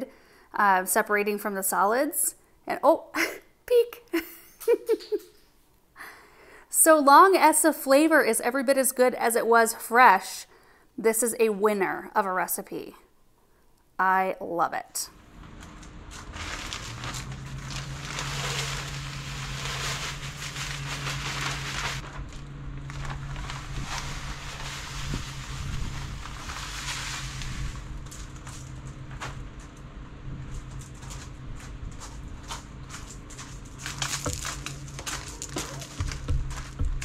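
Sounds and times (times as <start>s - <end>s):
steady low hum: 15.1s - 37.0s
soil pouring from a bag: 16.1s - 28.7s, 33.8s - 36.2s.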